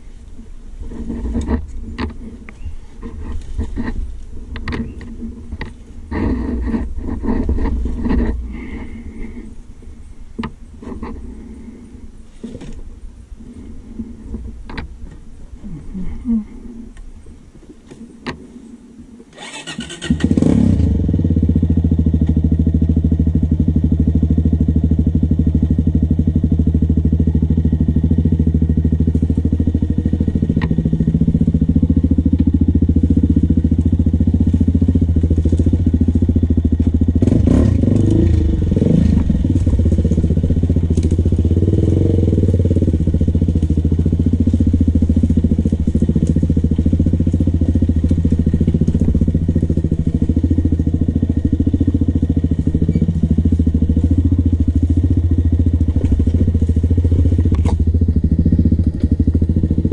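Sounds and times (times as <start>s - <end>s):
engine running at low revs: 0.0s - 59.9s
engine cranking: 19.3s - 21.2s, 26.4s - 59.9s
engine knocks: 21.1s - 59.9s.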